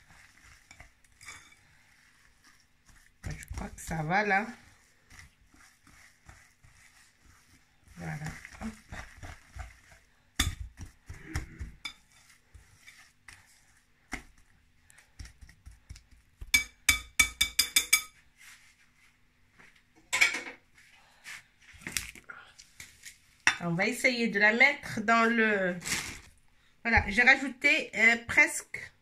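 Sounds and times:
dough mixing in glass bowl: 0.0s - 18.7s, 26.9s - 28.9s.

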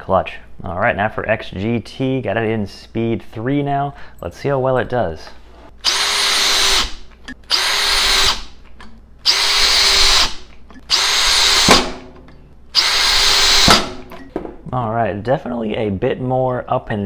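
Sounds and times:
cordless drill driving screws: 5.8s - 8.6s, 9.2s - 12.0s, 12.8s - 14.1s.

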